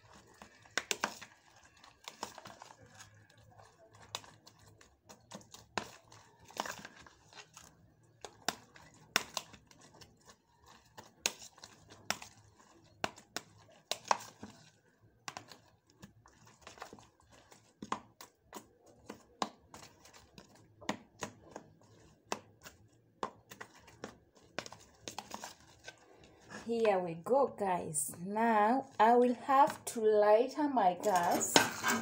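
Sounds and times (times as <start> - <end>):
spoon clicking and scraping bowl: 31.0 - 32.0.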